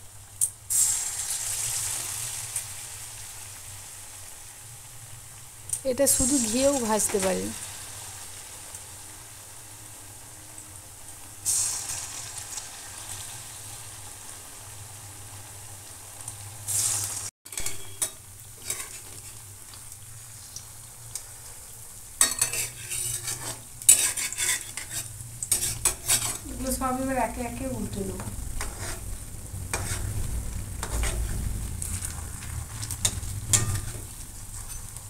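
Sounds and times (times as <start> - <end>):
deep-frying sizzle in oil: 0.0 - 35.0
metal spoon scraping a pan: 17.5 - 19.4, 22.2 - 26.5, 28.6 - 29.1, 29.7 - 35.0.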